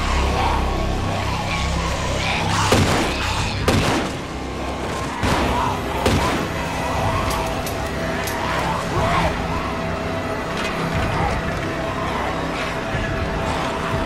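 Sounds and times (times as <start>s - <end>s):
tense background music: 0.0s - 14.0s
zombies snarling: 0.0s - 14.0s
sharp bangs: 2.6s - 6.6s.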